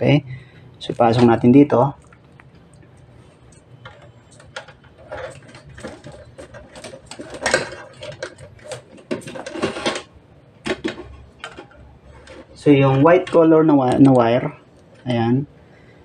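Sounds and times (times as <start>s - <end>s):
wires scraping through conduit: 3.2s - 10.1s, 11.0s - 15.1s.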